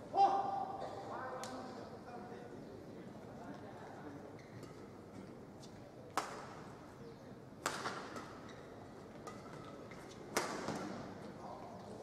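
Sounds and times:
racket hitting shuttlecock: 6.1s - 6.6s, 7.6s - 11.1s.

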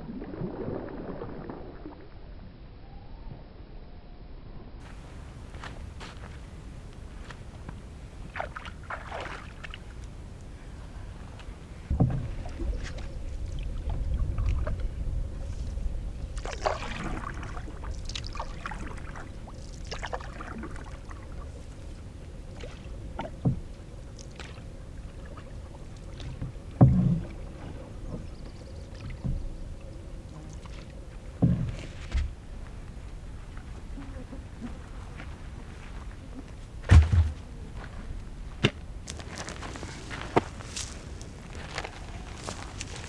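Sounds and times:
paddle splashing water: 7.7s - 10.6s, 11.2s - 32.7s
dull knocks against boat: 11.9s - 12.4s, 26.4s - 27.3s, 31.4s - 32.3s.

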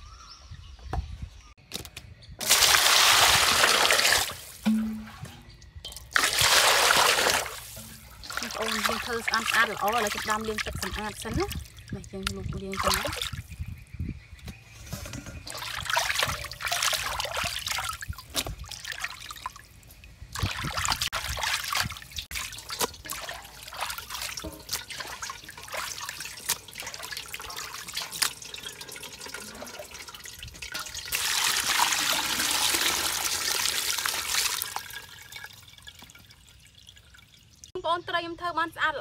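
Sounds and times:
water splashing in metal basin: 2.4s - 13.6s, 15.1s - 37.7s
water trickling: 2.4s - 13.7s, 15.4s - 37.8s.

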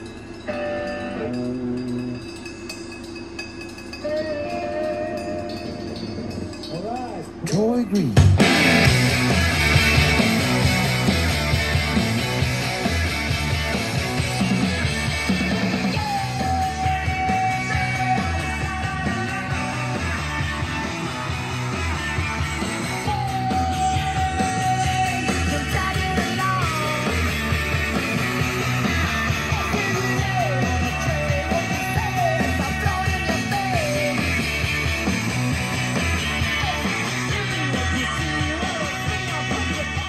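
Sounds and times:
rock band playing: 0.0s - 40.0s
loud singer: 4.0s - 6.0s, 15.4s - 35.0s, 36.2s - 40.0s.

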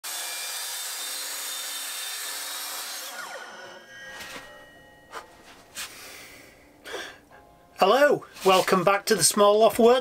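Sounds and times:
power tool cutting wood: 0.0s - 4.7s
power tool winding down: 0.1s - 4.4s.

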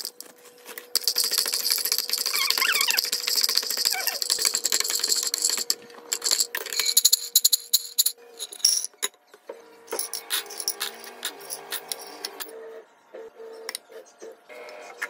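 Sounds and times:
spatula squeaks: 2.2s - 3.2s, 3.8s - 4.3s.

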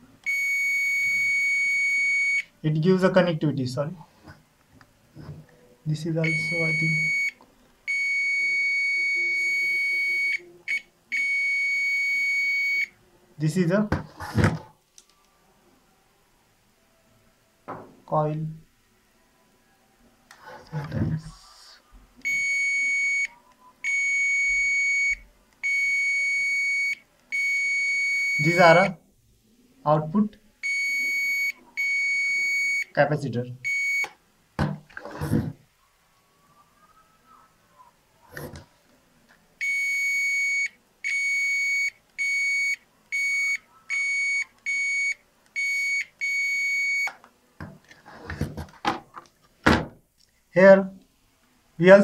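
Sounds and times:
multimeter continuity beeps: 0.2s - 2.5s, 6.2s - 12.9s, 22.2s - 29.0s, 30.6s - 32.9s, 33.6s - 34.2s, 39.6s - 47.2s
multimeter continuity buzzer beeping: 39.6s - 47.2s.

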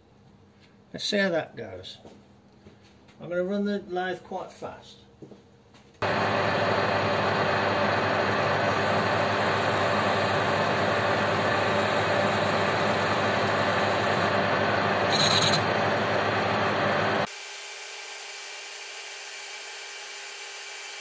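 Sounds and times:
metal lathe running: 6.0s - 17.3s.

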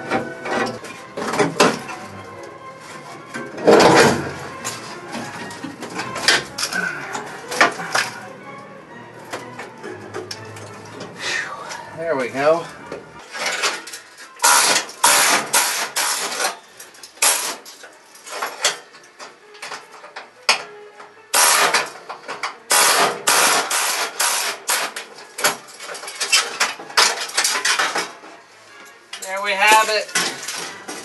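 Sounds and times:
sheet metal scraping and clanking: 0.0s - 8.4s, 9.2s - 18.9s.

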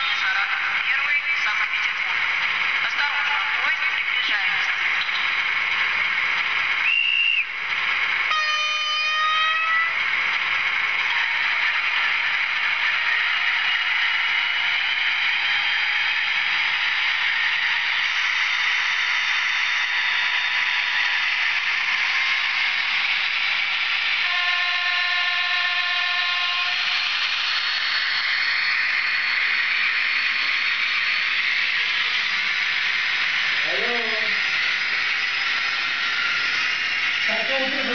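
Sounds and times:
rising whine: 5.0s - 37.9s
locomotive horn blasts: 8.3s - 10.0s, 24.2s - 26.8s
diesel engine sound from speaker: 33.6s - 34.5s.

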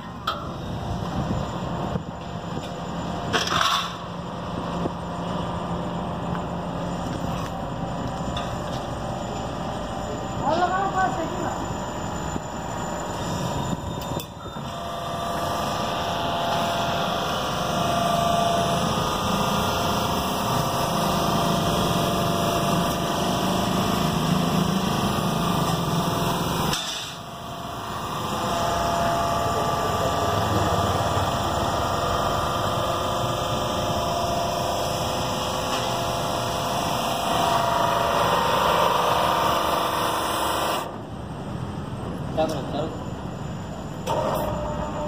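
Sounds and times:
hydraulic pump motor whining: 11.7s - 41.0s, 43.6s - 45.0s.

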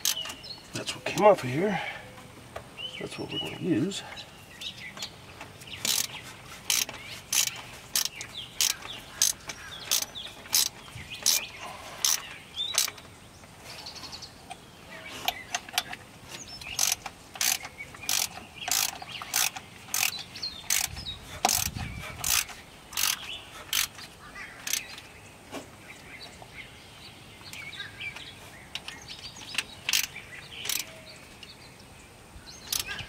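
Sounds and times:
ratchet wrench clicking: 5.8s - 11.4s, 12.0s - 13.0s, 16.6s - 24.0s, 24.6s - 25.0s, 29.5s - 30.9s, 32.7s - 33.0s.

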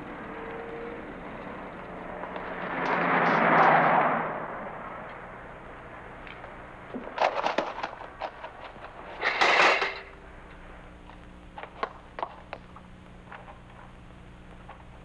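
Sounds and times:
bicycle falling with crash: 7.0s - 10.1s.

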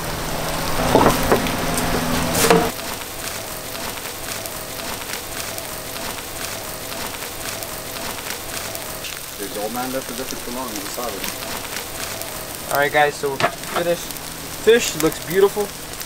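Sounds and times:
fish fillet sizzling: 0.0s - 16.0s
knocks: 0.8s - 1.6s.

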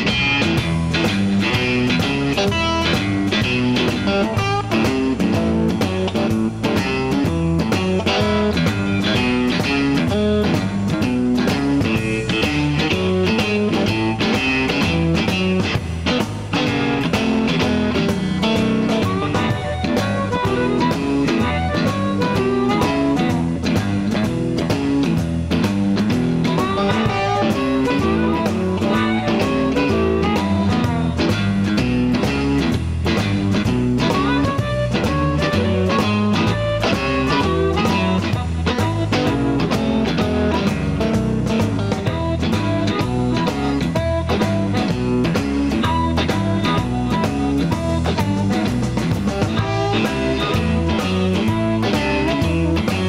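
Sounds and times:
blues band playing: 0.0s - 53.0s
amplified harmonica: 16.6s - 24.4s, 26.3s - 31.6s, 33.9s - 48.9s, 49.5s - 53.0s.

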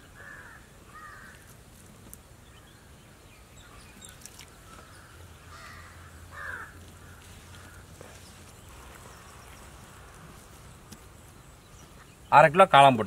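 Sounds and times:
bird calling: 0.0s - 1.5s, 2.4s - 12.5s.

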